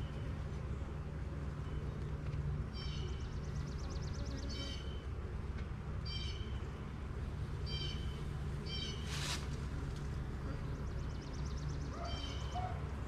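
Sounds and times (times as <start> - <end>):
bird calling: 7.6 - 9.4, 11.1 - 13.0.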